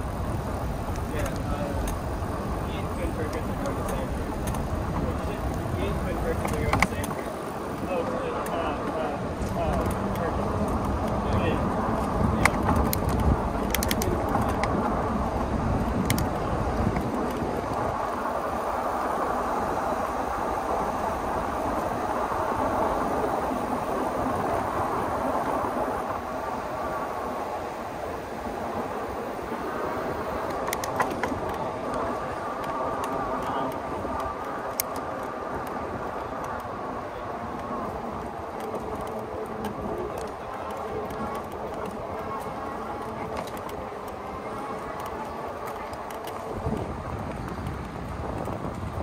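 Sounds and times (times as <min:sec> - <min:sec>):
bike tyre noise: 0:00.0 - 0:49.0
wind on microphone: 0:00.0 - 0:49.0
sharp clicks: 0:12.4 - 0:14.8.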